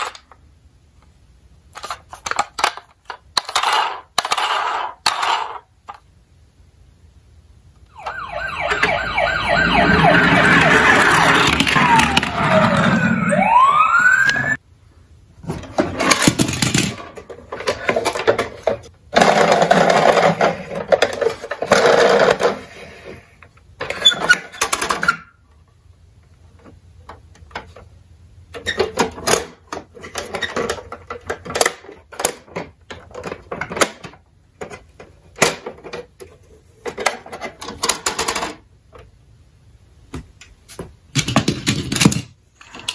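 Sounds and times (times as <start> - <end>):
toy electronic siren: 7.9 - 14.6.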